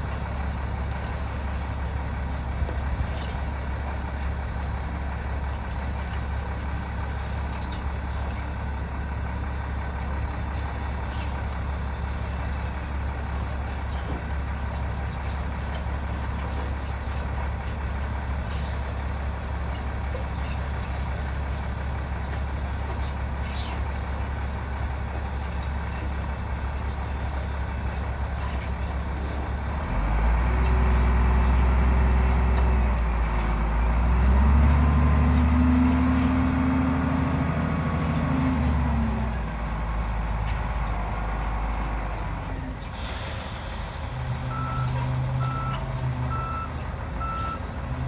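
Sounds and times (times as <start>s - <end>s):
wheel loader diesel engine revving: 0.0s - 48.0s.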